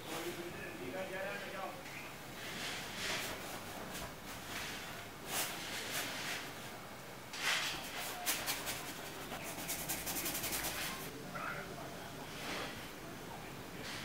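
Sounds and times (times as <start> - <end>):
paintbrush scrubbing across canvas: 7.9 - 11.1.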